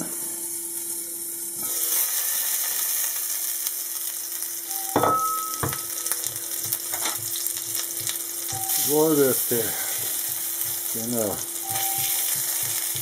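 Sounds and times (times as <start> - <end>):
sausages sizzling in oil: 0.0 - 13.0.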